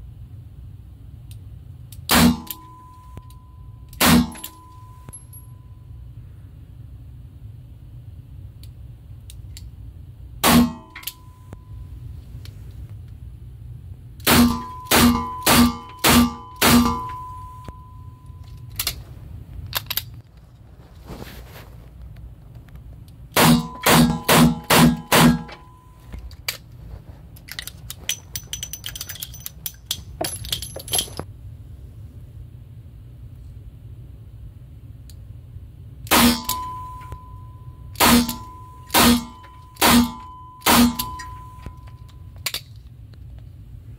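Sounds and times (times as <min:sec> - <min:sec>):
metallic clicks and clinks: 0:01.9 - 0:05.6, 0:10.8 - 0:11.6, 0:14.5 - 0:19.0, 0:19.7 - 0:20.2, 0:23.6 - 0:31.3, 0:37.9 - 0:42.9
revolver gunshots: 0:02.1 - 0:02.6, 0:04.0 - 0:04.5, 0:10.4 - 0:11.0, 0:14.2 - 0:17.2, 0:23.4 - 0:25.6, 0:36.1 - 0:36.7, 0:38.0 - 0:41.2.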